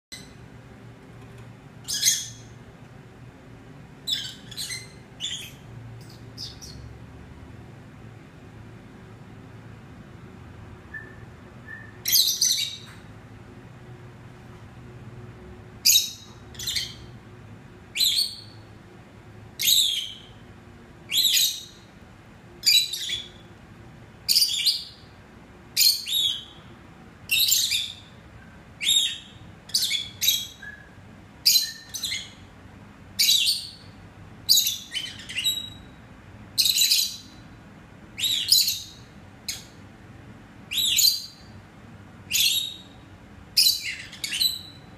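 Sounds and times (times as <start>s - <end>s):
lovebirds chirping: 1.8s - 2.6s, 4.0s - 7.0s, 10.9s - 13.1s, 15.8s - 17.2s, 17.9s - 18.7s, 19.6s - 20.4s, 21.1s - 21.9s, 22.6s - 23.5s, 24.2s - 25.1s, 25.8s - 26.7s, 27.3s - 32.5s, 33.2s - 37.4s, 38.2s - 39.8s, 40.7s - 41.6s, 42.3s - 44.9s.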